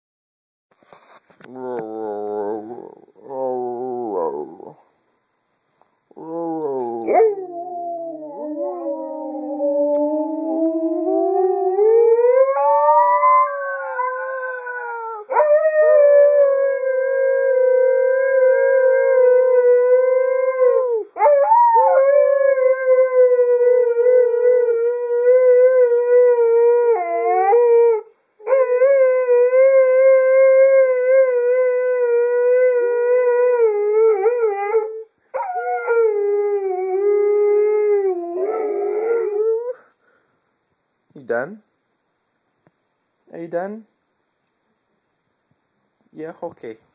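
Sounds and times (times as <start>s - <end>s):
dog howling: 6.2s - 39.8s.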